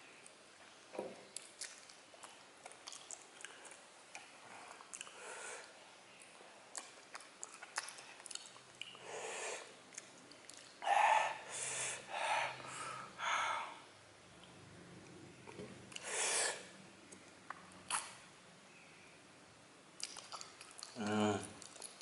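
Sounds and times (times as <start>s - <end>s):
wet chewing and sucking clicks: 1.4s - 9.0s, 9.9s - 10.8s, 17.5s - 18.2s, 20.0s - 22.0s.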